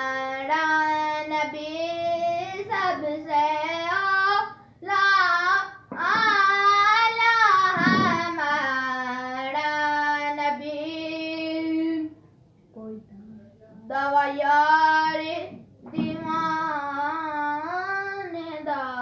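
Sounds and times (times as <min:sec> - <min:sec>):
boy singing unaccompanied: 0:00.0 - 0:19.0.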